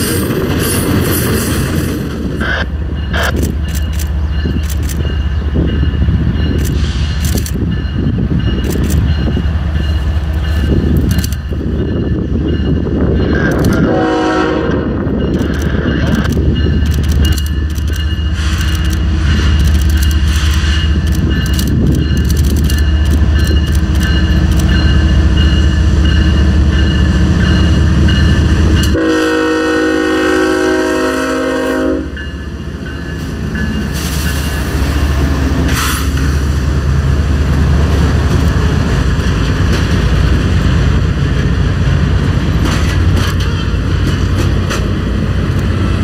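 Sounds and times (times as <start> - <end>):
diesel locomotive engine rumble: 0.0 - 46.0
train wheels on rails: 0.0 - 46.0
train horn: 13.6 - 15.1, 28.8 - 32.3.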